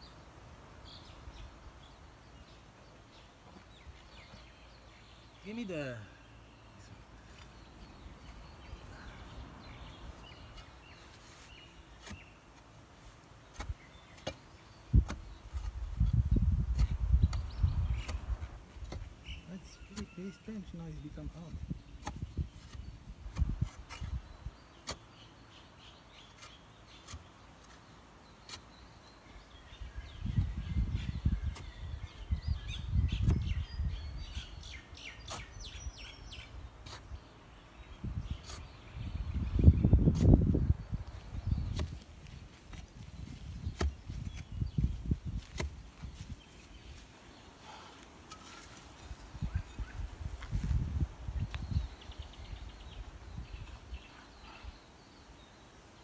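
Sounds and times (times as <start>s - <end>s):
birds chirping and whistling: 13.5s - 55.6s
faint bird chirps: 18.9s - 23.0s, 46.1s - 55.8s.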